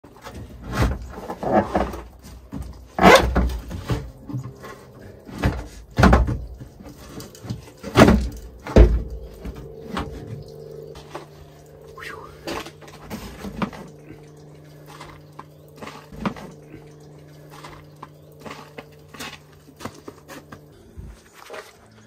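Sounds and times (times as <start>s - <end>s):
steady low hum: 0.1s - 22.0s
loud knocks and clunks: 5.4s - 6.6s, 7.8s - 9.2s.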